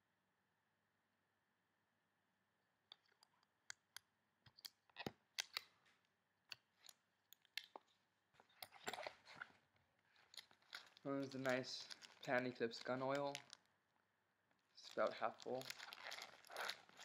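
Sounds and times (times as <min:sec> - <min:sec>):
faint clicks and taps of handling: 0:02.9 - 0:13.7.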